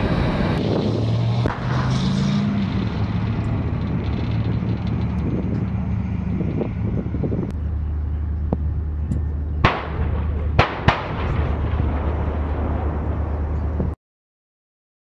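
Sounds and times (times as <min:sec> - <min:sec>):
diesel engine droning: 0:00.0 - 0:14.0
tracked vehicle driving on sand: 0:00.0 - 0:14.0.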